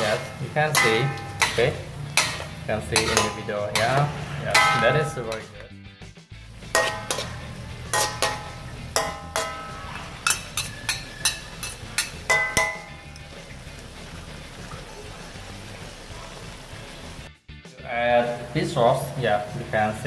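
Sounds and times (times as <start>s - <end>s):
metal spatula scraping a wok: 0.0s - 5.5s, 6.6s - 13.6s.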